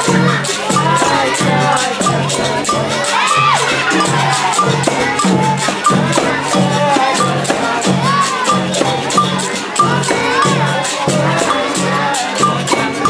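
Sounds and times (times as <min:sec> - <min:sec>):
basket rattle shaking: 0:00.0 - 0:13.0
voices singing: 0:00.0 - 0:13.0.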